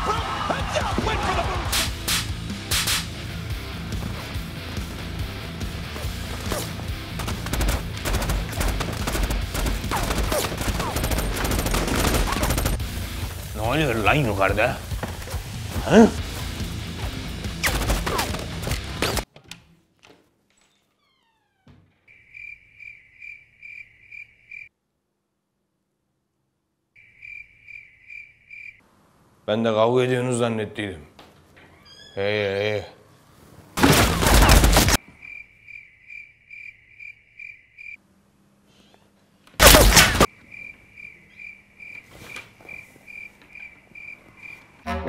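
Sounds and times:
gunshots in quick succession: 0:06.4 - 0:12.9, 0:17.6 - 0:19.2, 0:39.6 - 0:40.3
cricket chirping: 0:22.0 - 0:24.7, 0:27.0 - 0:28.9, 0:35.0 - 0:38.0, 0:40.3 - 0:44.8.

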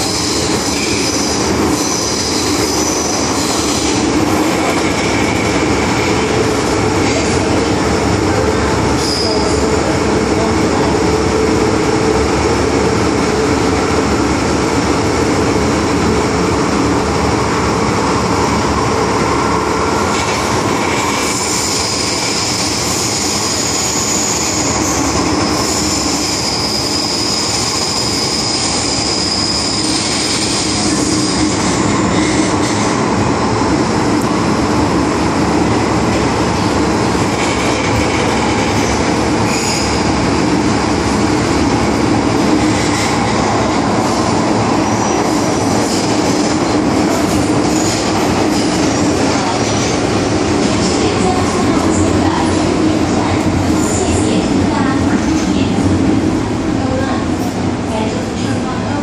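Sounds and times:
train wheels rumbling on rail: 0:00.0 - 0:59.0
high-pitched wheel squeal: 0:23.2 - 0:31.4.

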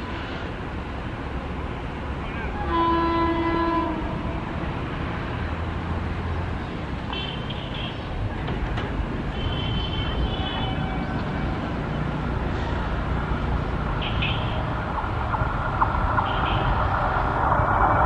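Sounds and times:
train rumbling on track: 0:00.0 - 0:18.0
faint train horn: 0:02.2 - 0:04.6, 0:09.4 - 0:11.7.

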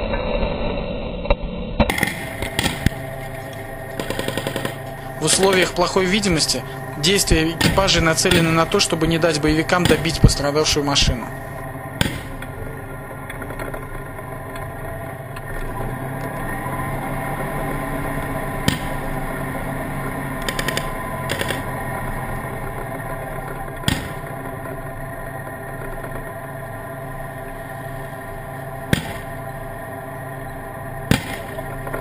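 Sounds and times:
tank engine running: 0:00.2 - 0:32.0
gunshots: 0:01.9 - 0:13.8, 0:18.4 - 0:19.6, 0:20.3 - 0:22.0, 0:23.8 - 0:24.8, 0:28.8 - 0:29.8, 0:31.0 - 0:32.0.

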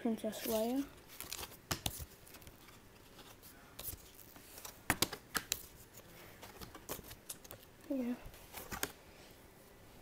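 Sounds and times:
paper rustling: 0:00.4 - 0:07.7.

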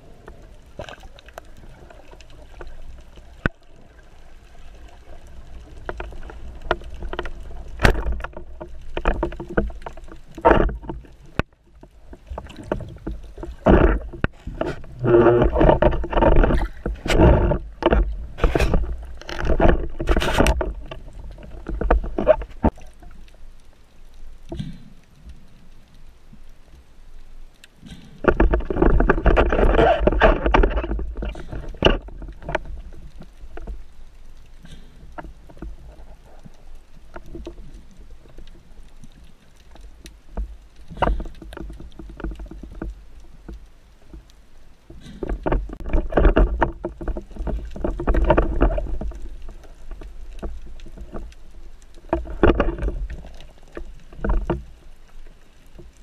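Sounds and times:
underwater rushing: 0:00.0 - 0:56.0.

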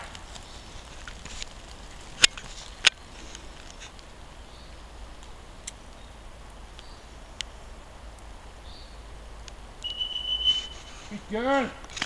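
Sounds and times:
short high chirps: 0:09.8 - 0:10.9.

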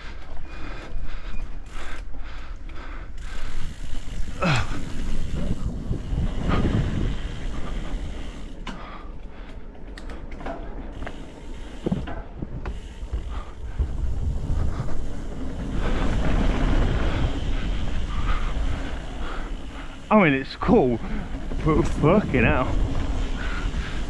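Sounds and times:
bike tyres rumbling over trail: 0:00.0 - 0:24.0
chain and frame rattling: 0:20.8 - 0:22.7.

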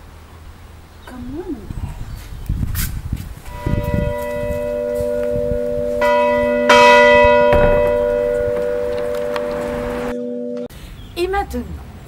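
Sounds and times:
church bell ringing: 0:03.5 - 0:10.7.

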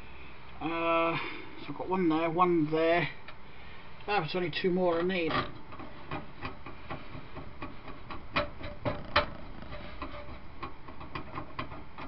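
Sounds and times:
small metallic clicks and taps: 0:05.0 - 0:12.0.

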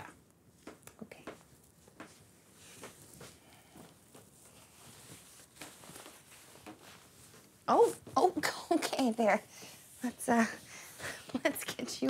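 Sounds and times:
clothing rustling: 0:00.5 - 0:12.0.

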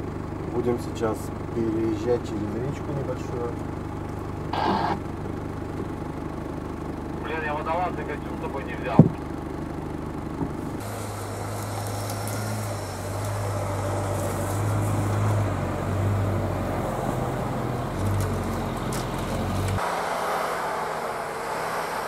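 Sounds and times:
van engine running: 0:00.0 - 0:22.0.

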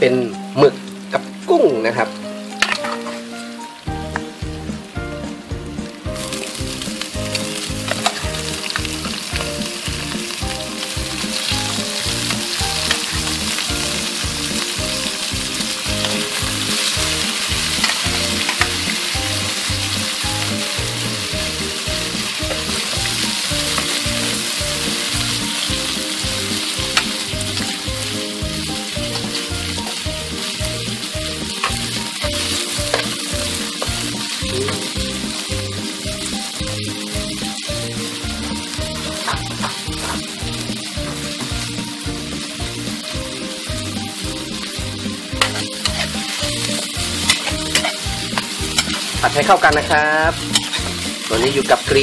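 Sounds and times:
seafood sizzling in a wok: 0:00.0 - 0:52.0
background music with steady beat: 0:02.2 - 0:52.0
metal ladle scraping a pan: 0:02.6 - 0:03.3, 0:07.8 - 0:09.5, 0:16.0 - 0:20.6, 0:31.4 - 0:33.2, 0:39.0 - 0:40.4, 0:45.3 - 0:51.2.

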